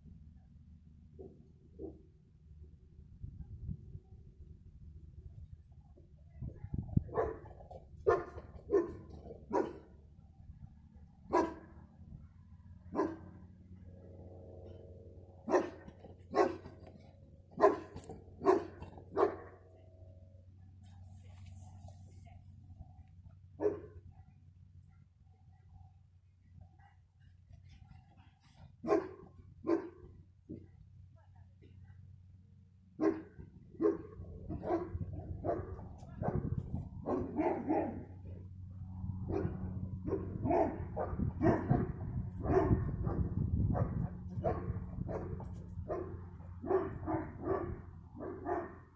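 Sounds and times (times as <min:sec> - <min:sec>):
steady low hum: 0:00.0 - 0:48.9
dog barking: 0:07.1 - 0:09.8, 0:11.3 - 0:11.7, 0:12.9 - 0:13.2, 0:15.5 - 0:16.7, 0:17.6 - 0:19.5, 0:23.6 - 0:24.0, 0:28.8 - 0:30.0, 0:33.0 - 0:38.0, 0:39.3 - 0:48.8.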